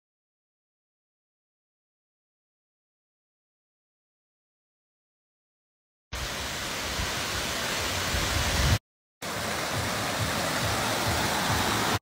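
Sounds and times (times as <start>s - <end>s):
waterfall rushing over rocks: 6.2s - 12.0s.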